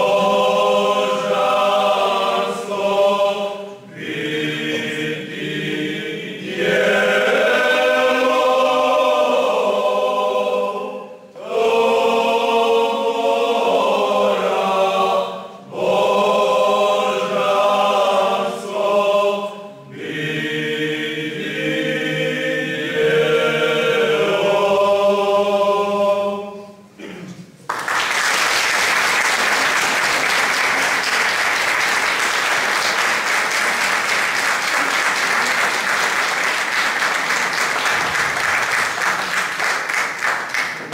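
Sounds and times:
men's choir singing a cappella: 0.0 - 27.3
audience applause: 27.6 - 40.9.

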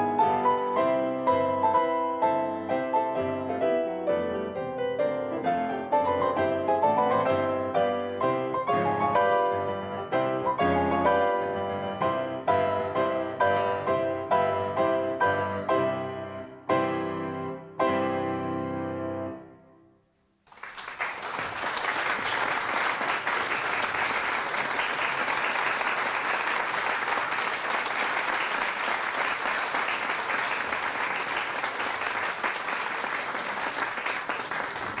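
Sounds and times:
audience applause: 20.5 - 35.0.

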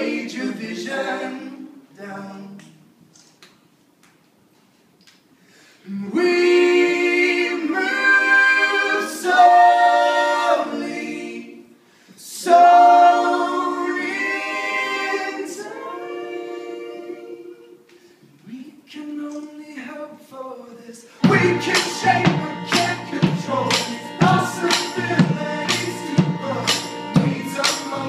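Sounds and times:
group singing in close harmony: 0.0 - 2.5, 5.9 - 17.9, 21.1 - 28.0.

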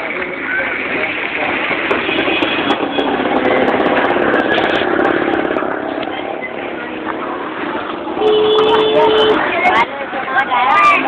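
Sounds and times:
street noise: 0.0 - 11.0
vehicle engine running: 0.8 - 9.3.

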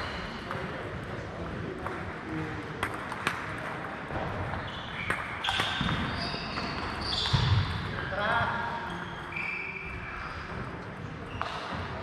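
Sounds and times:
echoing sports hall noise: 0.0 - 12.0
table tennis balls clicking: 1.7 - 3.8.

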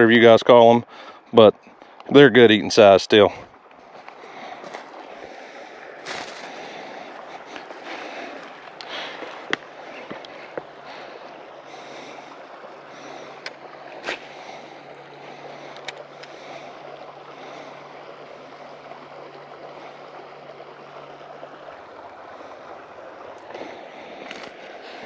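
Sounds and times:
fishing reel whirring: 13.0 - 21.2.

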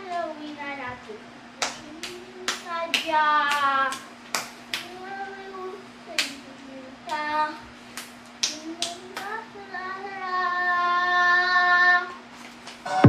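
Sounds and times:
child singing: 0.0 - 4.1, 4.8 - 7.6, 8.4 - 12.2
child clapping: 1.6 - 5.0, 6.1 - 6.4, 7.1 - 7.3, 7.9 - 9.4.

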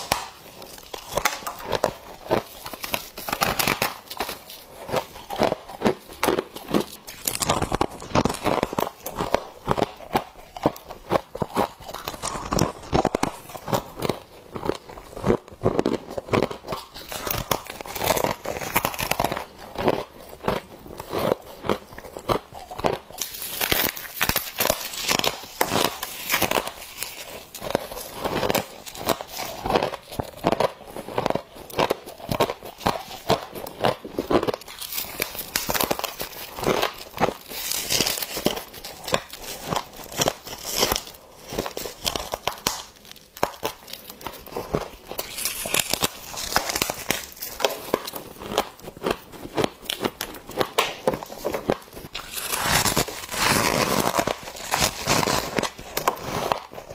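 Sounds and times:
person chewing crunchy frost: 0.0 - 56.9
frost crumpling in hands: 23.2 - 56.9.

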